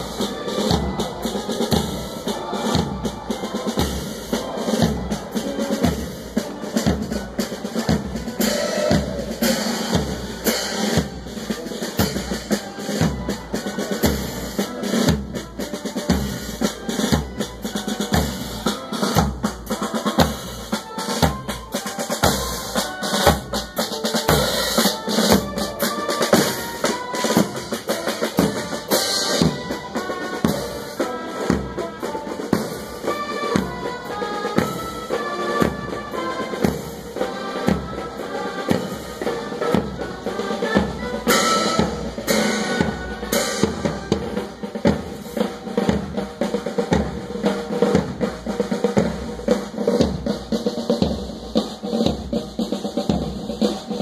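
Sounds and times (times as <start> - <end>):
brass playing a melody: 0.0 - 48.8
marching band drums: 0.0 - 54.0.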